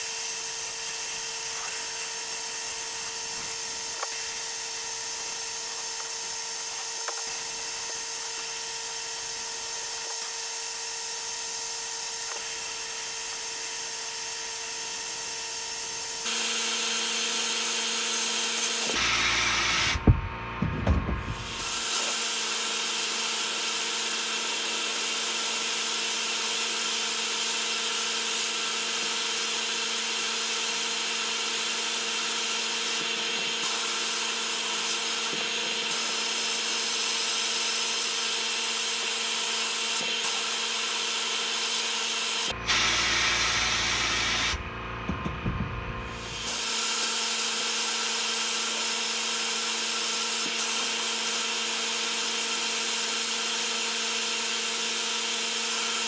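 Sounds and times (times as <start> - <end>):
sandblasting hiss: 0.0 - 20.0, 21.2 - 44.6, 46.0 - 56.0
steady hum: 19.1 - 21.7, 42.5 - 46.6.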